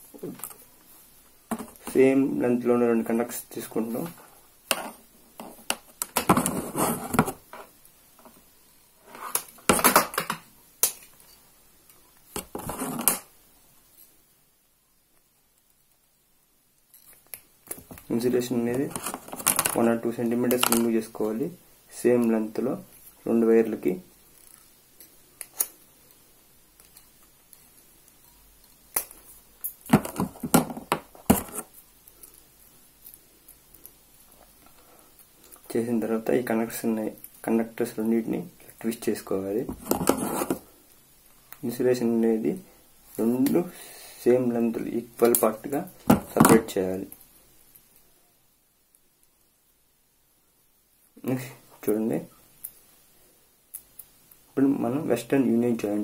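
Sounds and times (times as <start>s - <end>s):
wires clicking and crackling: 3.2s - 14.3s, 16.7s - 21.5s, 22.1s - 42.2s, 44.4s - 48.1s, 50.9s - 54.6s.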